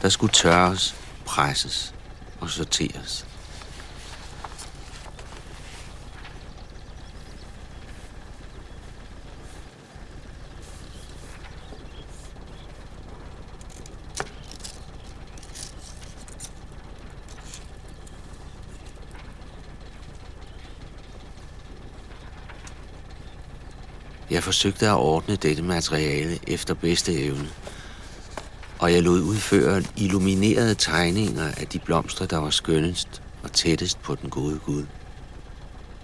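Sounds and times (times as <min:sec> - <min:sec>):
steady low hum: 0:00.0 - 0:36.0
paper sheets clicking and rustling: 0:03.3 - 0:06.5, 0:13.2 - 0:19.4, 0:26.8 - 0:32.6.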